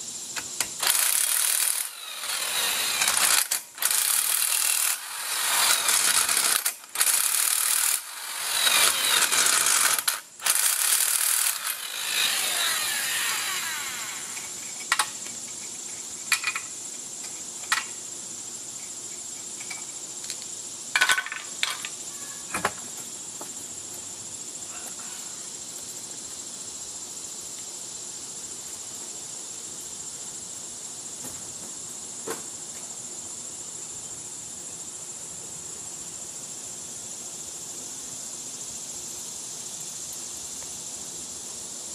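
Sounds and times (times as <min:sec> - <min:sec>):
impact wrench whirring: 0:00.8 - 0:15.0
tool and nuts clanking: 0:14.3 - 0:16.7, 0:21.0 - 0:22.0.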